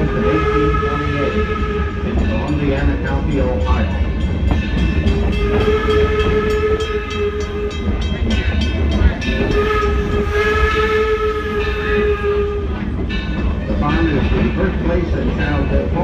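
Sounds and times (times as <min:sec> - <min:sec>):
steam whistle blasts: 0:00.0 - 0:02.3, 0:05.4 - 0:07.9, 0:09.4 - 0:12.8.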